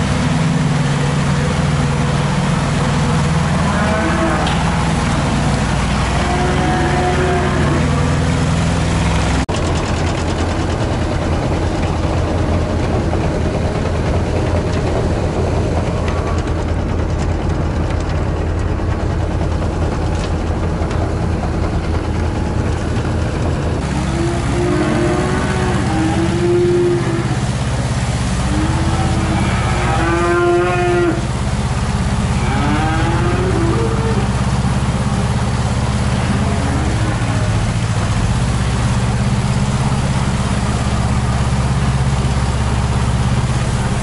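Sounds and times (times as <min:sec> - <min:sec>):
machinery engine hum: 0:00.0 - 0:44.0
cows mooing: 0:02.2 - 0:08.5, 0:23.8 - 0:31.4, 0:32.2 - 0:34.6, 0:35.4 - 0:38.1.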